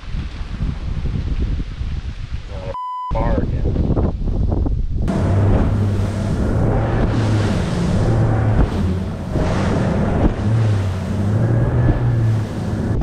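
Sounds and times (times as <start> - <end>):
wind noise on microphone: 0.0 - 13.0
outboard motor hum: 5.1 - 13.0
spray rushing off hull: 5.1 - 13.0.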